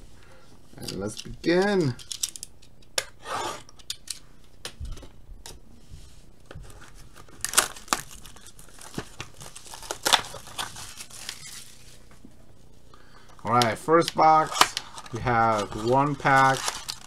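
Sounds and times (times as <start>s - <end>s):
plastic crinkling: 6.6s - 12.1s, 13.4s - 17.0s
sharp plastic rips: 7.2s - 11.7s, 13.6s - 17.0s
plastic shrink-wrap being torn off: 7.2s - 11.9s, 14.1s - 17.0s.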